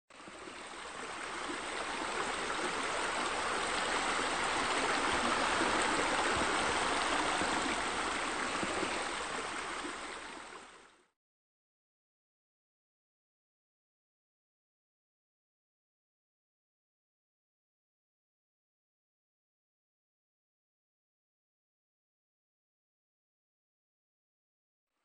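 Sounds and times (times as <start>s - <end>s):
rushing splashing water: 0.1s - 10.9s.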